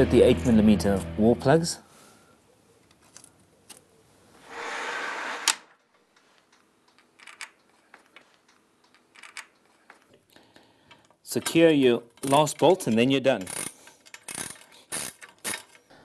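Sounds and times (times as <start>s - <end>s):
sharp metallic clicks: 10.9s - 15.9s
bolt scraping on metal gate: 11.4s - 15.8s.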